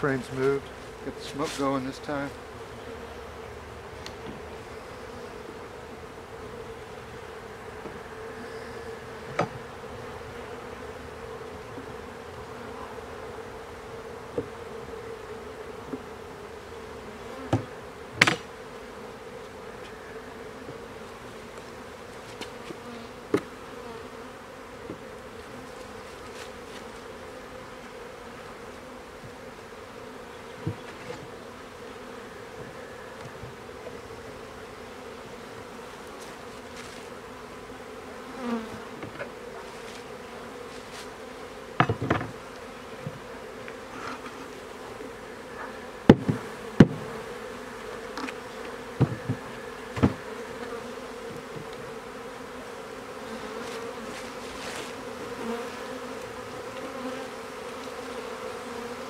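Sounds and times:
honeybees buzzing: 0.0 - 59.0
knocks of wooden hive frames: 9.2 - 9.7, 17.4 - 18.6, 22.3 - 23.8, 30.6 - 31.4, 41.8 - 44.4, 45.6 - 47.4, 48.1 - 52.0.

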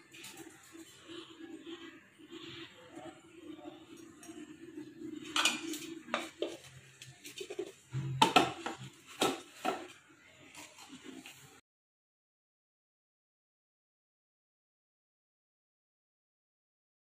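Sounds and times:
steel kitchen vessels clinking: 5.2 - 6.7.

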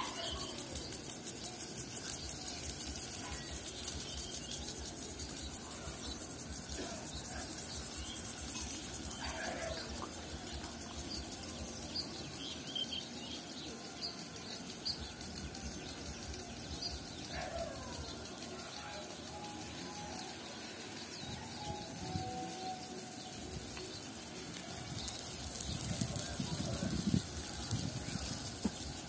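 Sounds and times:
small birds chirping: 0.0 - 29.0
water spraying from sprinklers: 0.0 - 29.0.

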